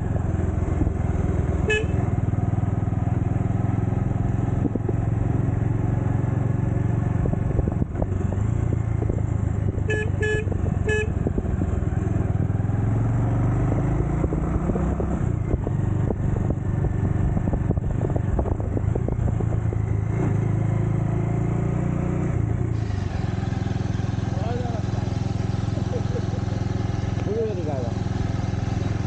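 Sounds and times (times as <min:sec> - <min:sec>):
motorcycle engine running: 0:00.0 - 0:29.0
wind and road noise: 0:00.0 - 0:29.0
horn toots: 0:01.6 - 0:02.1, 0:09.8 - 0:11.2.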